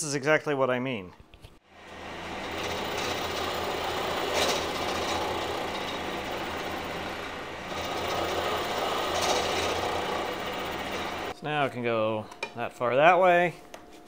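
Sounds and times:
motor hum: 1.7 - 11.3
milling machine cutting metal: 1.8 - 11.3.

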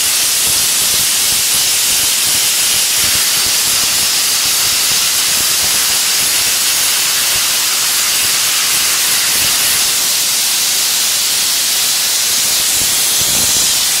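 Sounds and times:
blasting nozzle hissing: 0.0 - 14.0.

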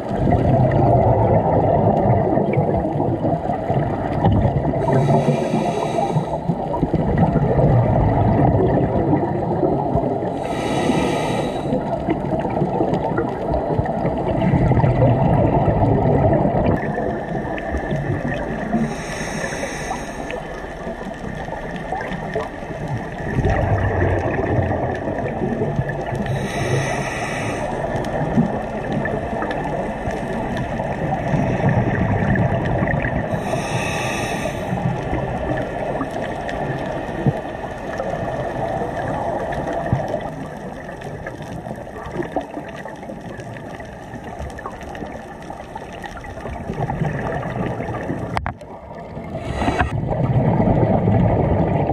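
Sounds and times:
bubbling exhaled air: 0.0 - 51.9
regulator inhalation hiss: 4.9 - 6.5, 10.4 - 11.8, 18.8 - 20.5, 26.2 - 27.9, 33.3 - 34.8.

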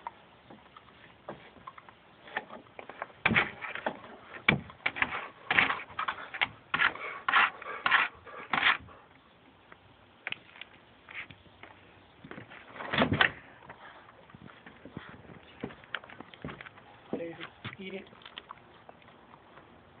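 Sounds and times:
dog scratching wooden deck: 2.2 - 9.0.

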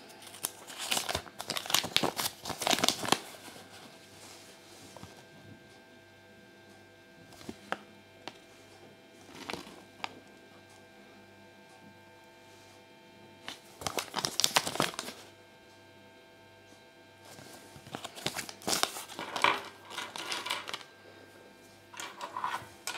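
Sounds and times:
paper leaflet crinkling: 0.0 - 5.2, 9.2 - 10.2, 13.4 - 15.3, 17.3 - 20.9, 22.0 - 22.9.

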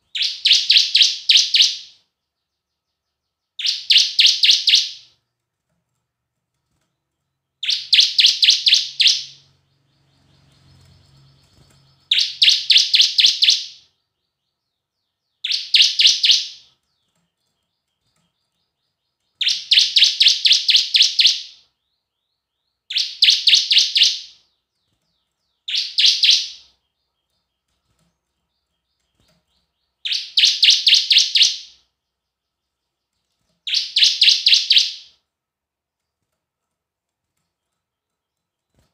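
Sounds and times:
bird singing fast high chirps: 0.1 - 2.0, 3.5 - 5.1, 7.6 - 13.9, 15.2 - 16.7, 19.3 - 21.7, 22.7 - 24.6, 25.4 - 27.0, 28.8 - 31.8, 33.6 - 35.2.

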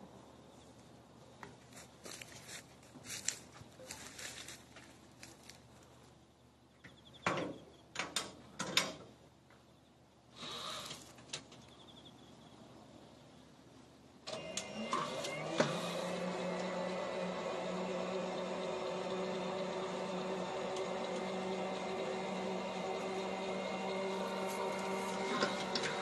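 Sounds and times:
electric lift motor running: 14.3 - 26.0.

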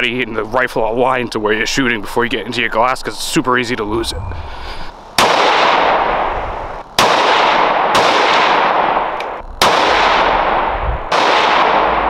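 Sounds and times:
gunshots with echo: 5.2 - 12.0.

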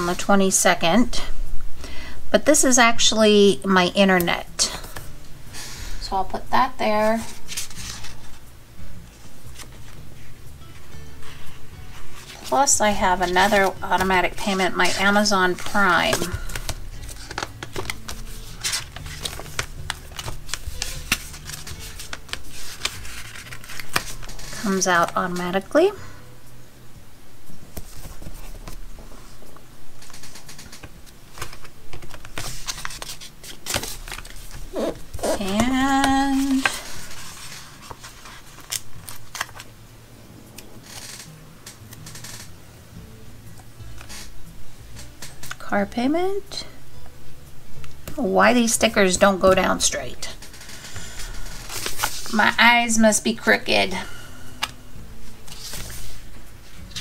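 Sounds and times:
paper pages rustling: 7.1 - 8.4, 9.1 - 25.2, 27.7 - 39.7, 50.4 - 52.6, 54.6 - 57.0.

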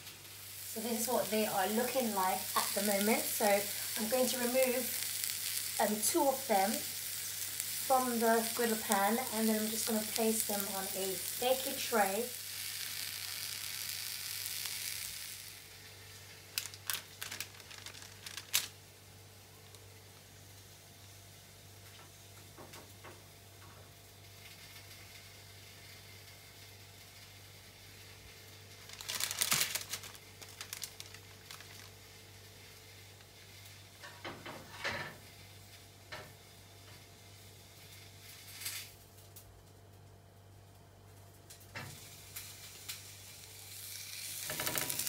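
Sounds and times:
vegetables sizzling on griddle: 0.0 - 23.4, 24.0 - 39.0, 41.5 - 45.0
baking paper crinkling: 0.6 - 15.4, 16.1 - 18.8, 28.0 - 33.8, 44.0 - 45.0.

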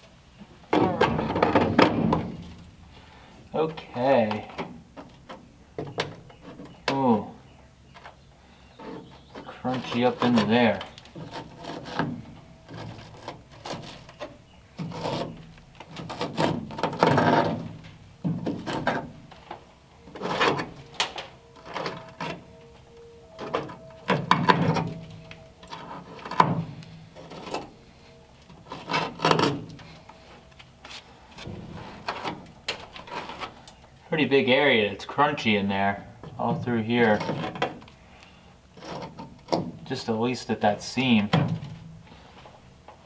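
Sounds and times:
rust scale crackling and scraping: 0.0 - 43.0.

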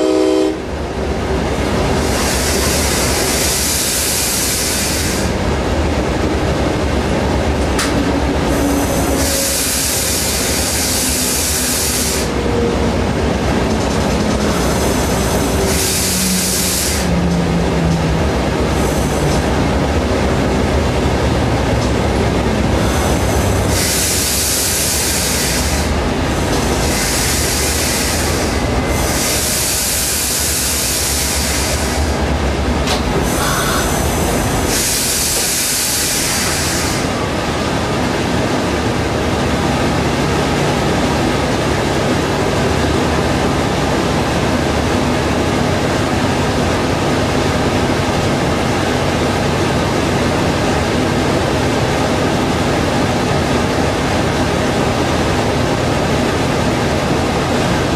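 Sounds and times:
train rumble: 0.0 - 57.9
steady drone: 5.3 - 35.4.

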